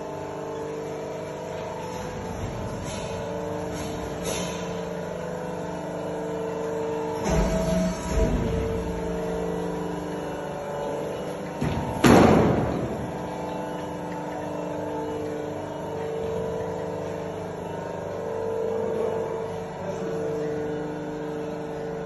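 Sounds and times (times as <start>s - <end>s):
workshop machinery humming: 0.0s - 22.0s
sharp loud bang: 11.6s - 12.9s.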